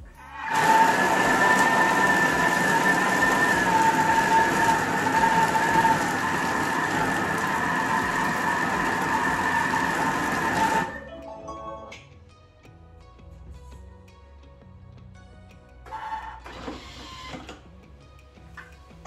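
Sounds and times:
food processor motor whine: 0.3s - 11.1s, 15.9s - 17.6s
loud rushing mixing noise: 0.3s - 11.1s.

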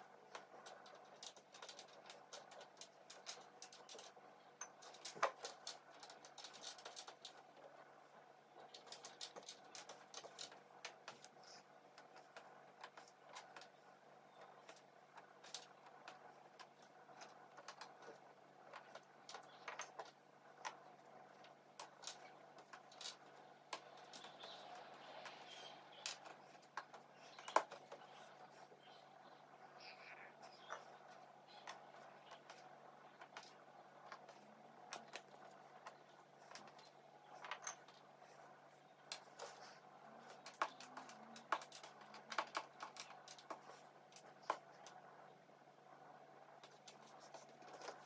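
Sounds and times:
puzzle pieces clicking and tapping: 14.4s - 28.2s.

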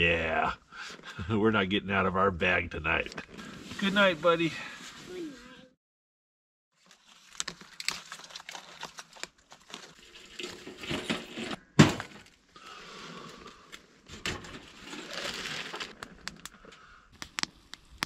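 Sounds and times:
fire crackling and snapping: 15.1s - 18.0s.

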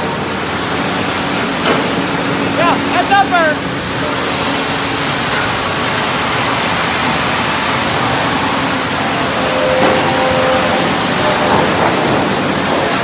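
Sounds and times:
boards on roller conveyors: 0.0s - 13.0s
sawmill machinery din: 0.0s - 13.0s.

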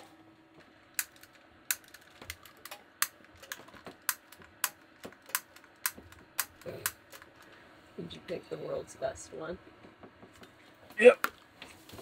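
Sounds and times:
small hard tools clicking: 1.0s - 7.5s.

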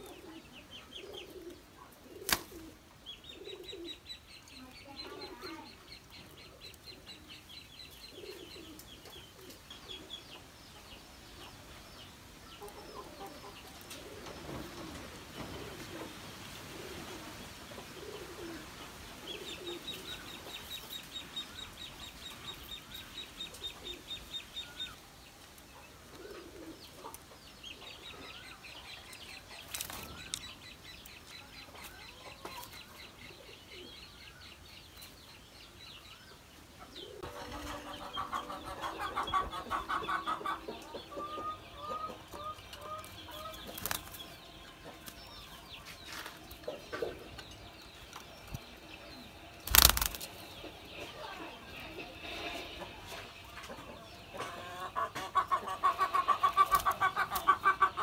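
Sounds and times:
doves cooing: 0.0s - 4.1s, 8.0s - 9.6s, 13.0s - 20.2s, 26.0s - 27.1s
wings flapping: 49.6s - 50.4s.

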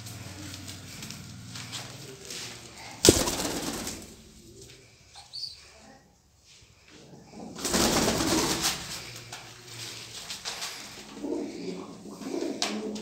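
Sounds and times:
pigeons cooing: 2.3s - 5.6s, 10.7s - 13.0s
loud rustling burst: 3.0s - 4.2s.

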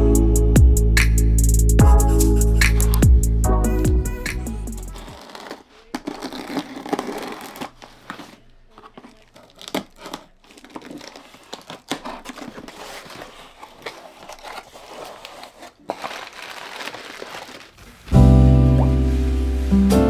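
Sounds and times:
tape tearing: 2.6s - 3.0s, 4.9s - 18.2s
scissors slitting packing tape: 4.9s - 17.8s
cardboard flaps scraping: 4.9s - 20.0s
plastic packing crinkling: 5.0s - 20.0s.

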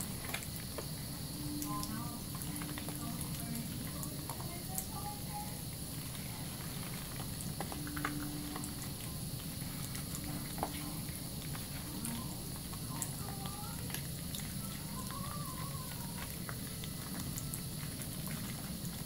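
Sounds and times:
tap water running into sink: 0.0s - 19.0s.

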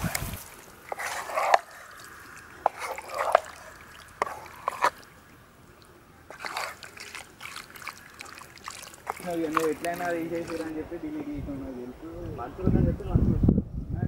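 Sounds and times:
wet squelching of chicken: 0.0s - 10.8s.

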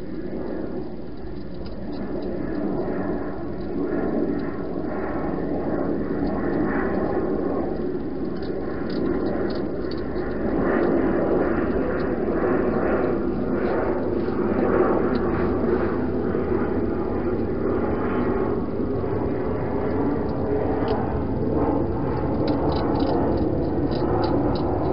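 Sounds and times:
background rumble and hiss: 0.0s - 24.9s
hedgehog chewing and crunching: 1.1s - 5.2s, 5.9s - 12.3s, 19.2s - 24.9s.

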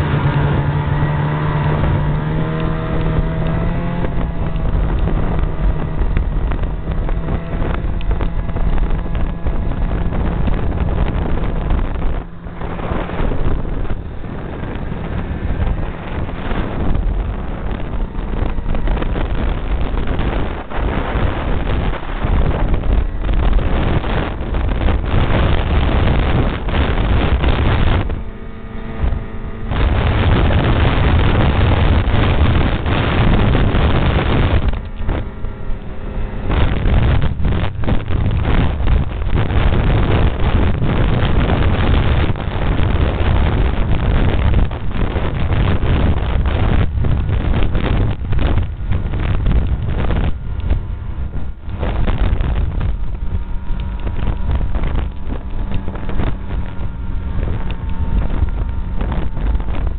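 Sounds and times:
snowmobile running at speed: 0.0s - 59.9s
wind buffeting microphone: 0.0s - 59.9s.

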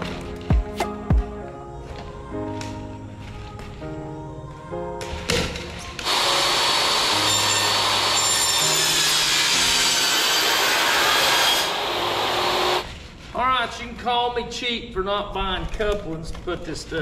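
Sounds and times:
background music: 0.0s - 13.0s
power saw cutting plastic pipe: 6.0s - 12.9s.

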